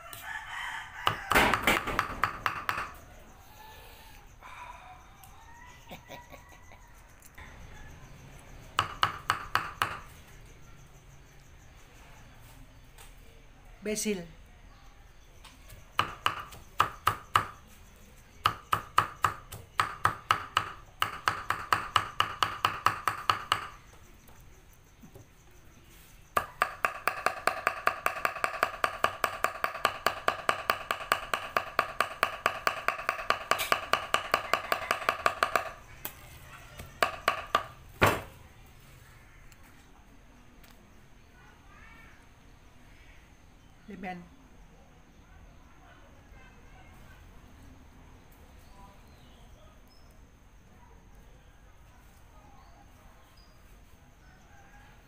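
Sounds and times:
cleaver chopping on wooden block: 1.0s - 3.0s, 8.8s - 10.1s, 16.0s - 17.6s, 18.4s - 23.8s, 26.4s - 35.9s, 36.8s - 38.3s.

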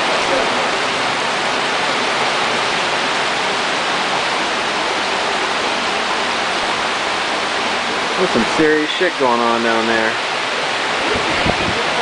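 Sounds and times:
flooded creek rushing: 0.0s - 12.0s.

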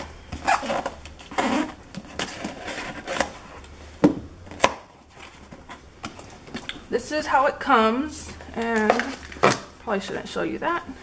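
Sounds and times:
cardboard scraping and rustling: 0.3s - 3.6s.

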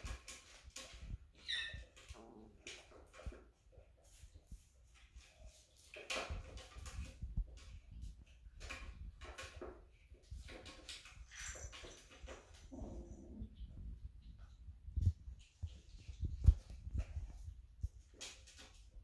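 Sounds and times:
paws and toys on wooden floor: 0.0s - 19.0s
soft low bumps: 12.6s - 18.2s.

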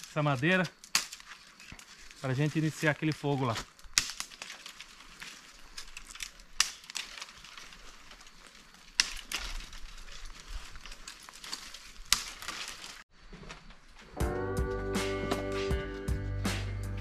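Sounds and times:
twigs snapping: 0.0s - 13.6s
dry wood crackling rustle: 0.0s - 14.8s.

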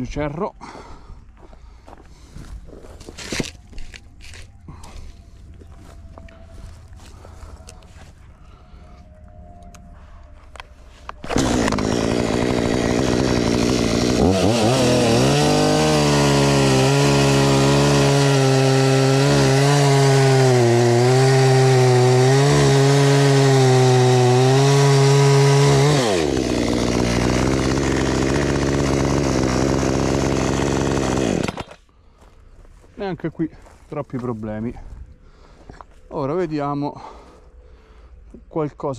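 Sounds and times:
chainsaw cutting log: 11.2s - 31.9s.

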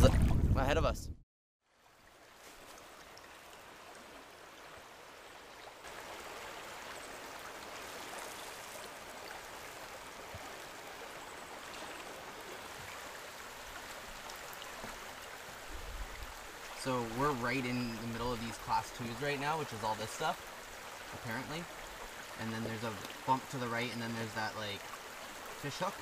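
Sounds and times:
water rushing over rocks: 5.8s - 26.0s.

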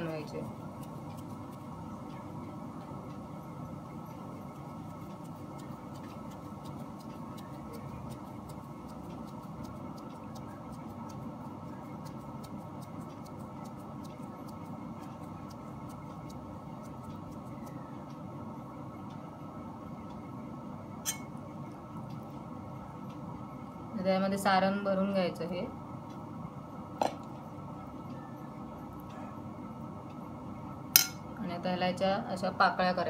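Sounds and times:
low background hum: 0.0s - 33.0s
fingers pressing dough: 0.4s - 1.8s, 4.5s - 17.9s.

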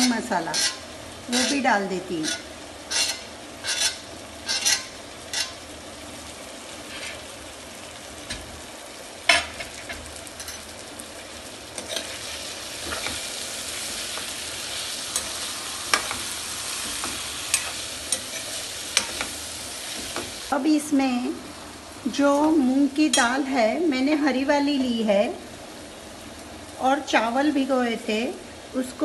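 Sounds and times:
vegetables sizzling in a pan: 0.0s - 29.0s
steel spoon clinking on pan: 17.5s - 19.3s.

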